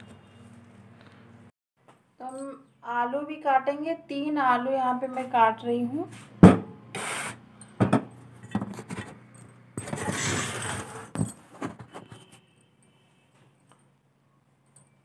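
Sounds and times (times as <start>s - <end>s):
rubbing scrape: 10.0s - 11.1s.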